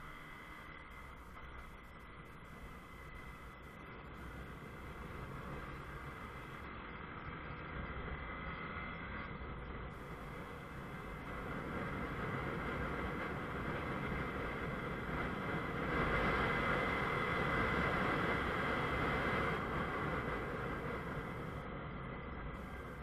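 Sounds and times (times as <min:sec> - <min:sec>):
motorcycle engine running: 0:00.0 - 0:23.0
wind rushing over microphone: 0:09.7 - 0:23.0.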